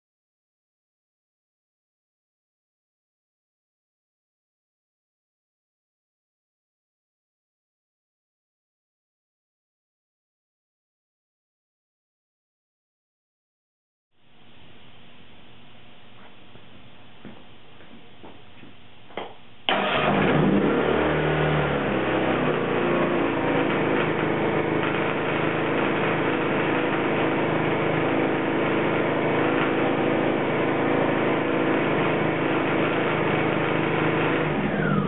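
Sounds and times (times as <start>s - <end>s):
generator engine running: 19.7s - 35.0s.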